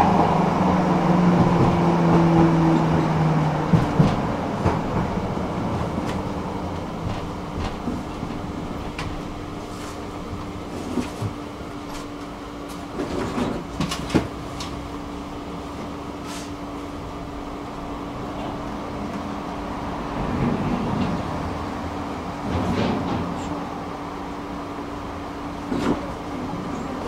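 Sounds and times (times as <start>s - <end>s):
tram hum: 0.0s - 27.0s
tram rumbling on track: 0.0s - 27.0s.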